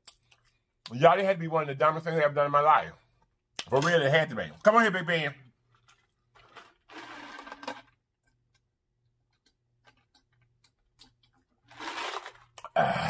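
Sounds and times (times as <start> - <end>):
man gulping a drink: 9.4 - 13.0.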